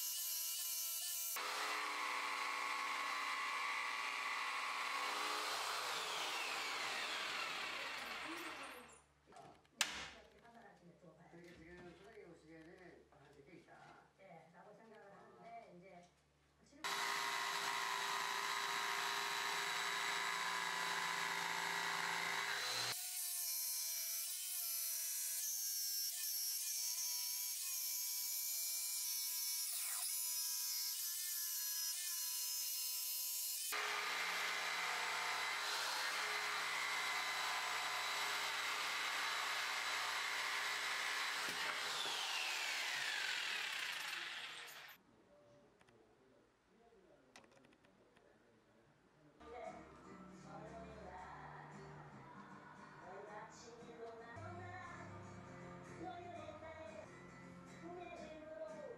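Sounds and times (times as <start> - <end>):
jigsaw cutting wood: 0.0 - 8.9, 16.8 - 25.4, 26.0 - 45.0.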